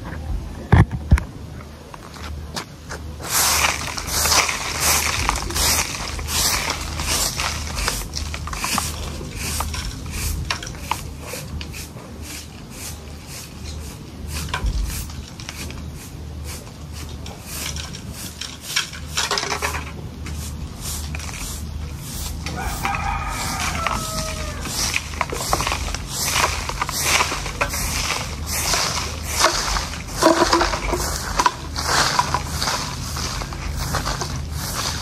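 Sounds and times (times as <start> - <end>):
grass broom sweeping dirt: 3.0 - 35.0.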